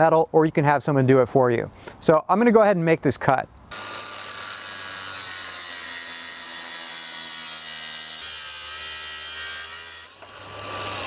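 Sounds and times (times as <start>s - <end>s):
angle grinder cutting steel pipe: 3.7s - 11.0s.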